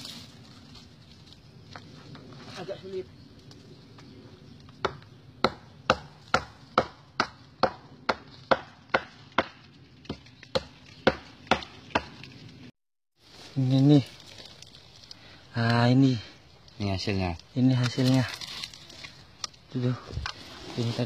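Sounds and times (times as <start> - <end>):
machete chopping rotting wood: 4.8 - 12.3.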